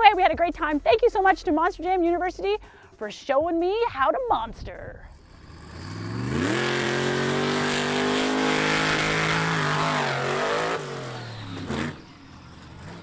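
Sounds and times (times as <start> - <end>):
monster truck engine revving: 5.2 - 13.0.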